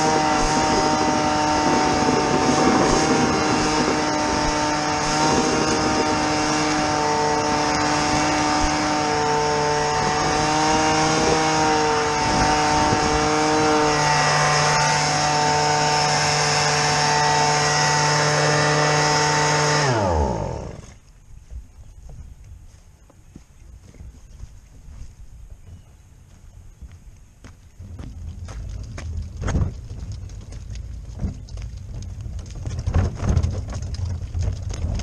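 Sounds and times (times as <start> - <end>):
motor-driven machine running: 0.0 - 21.0.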